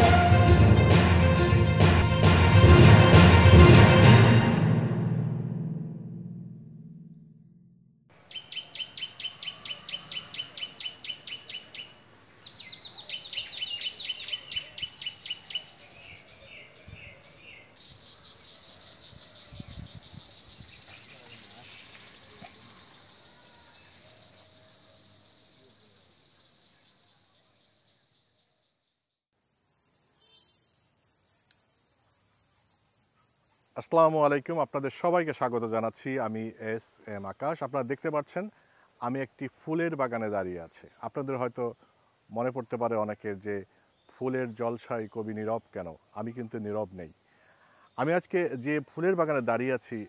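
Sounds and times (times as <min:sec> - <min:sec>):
bird chirping: 0:08.1 - 0:33.7
high insect buzz: 0:17.8 - 0:33.7.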